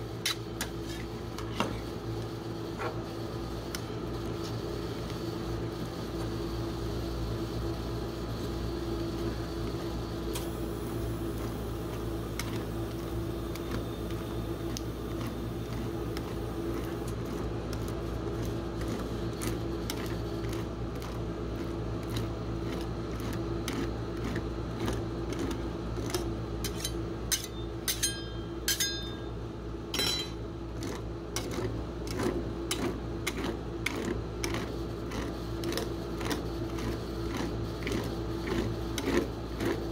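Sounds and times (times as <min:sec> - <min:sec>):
refrigeration hum: 0:00.0 - 0:39.9
metal spatulas scraping plate: 0:26.6 - 0:29.0.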